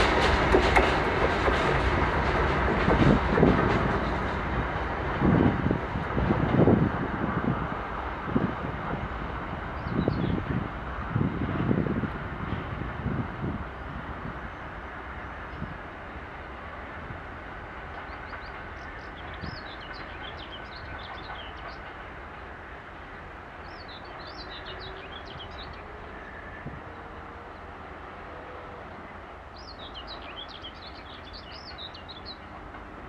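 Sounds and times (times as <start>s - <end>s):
distant freight train rumble: 0.0s - 33.0s
songbird twittering: 29.6s - 32.5s.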